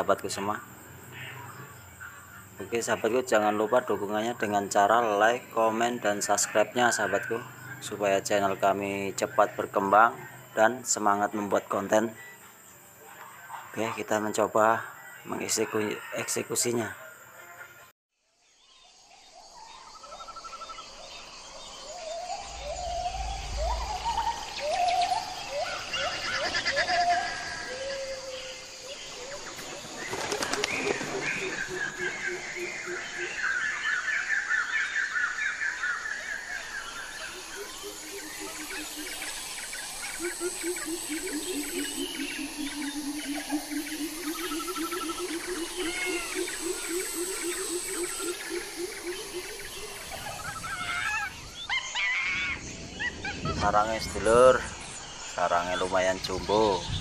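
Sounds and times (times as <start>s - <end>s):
high insect hum: 0.0s - 57.0s
bird chirps: 18.4s - 57.0s
rising whooping animal calls: 21.9s - 29.6s, 37.1s - 53.7s.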